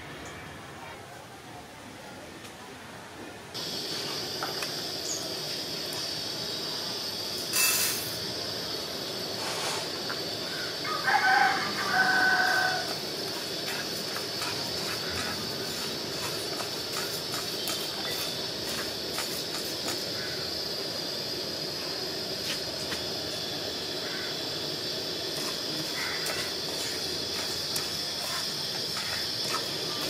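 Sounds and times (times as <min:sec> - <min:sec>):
gas burner hissing: 0:03.5 - 0:30.0
spatula scraping pan: 0:12.0 - 0:20.0, 0:25.3 - 0:30.0.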